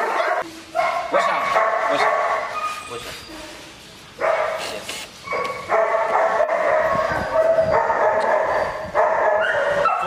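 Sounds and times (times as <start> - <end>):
dog whining: 2.5 - 3.6, 6.9 - 10.0.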